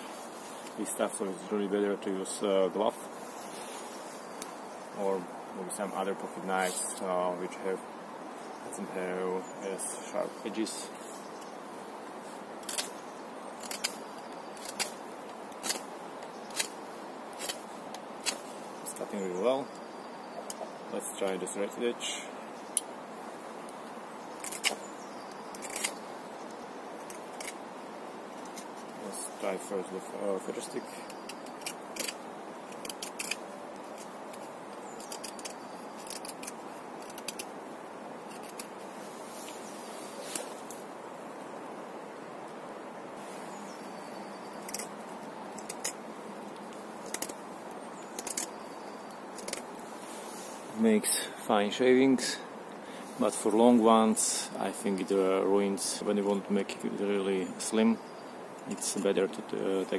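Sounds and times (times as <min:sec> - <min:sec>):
steady background noise: 0:00.0 - 0:59.9
knife carving wood: 0:12.6 - 0:18.5, 0:24.4 - 0:26.1, 0:27.0 - 0:27.7, 0:30.7 - 0:37.6, 0:38.2 - 0:38.8, 0:44.5 - 0:46.0, 0:46.6 - 0:49.9.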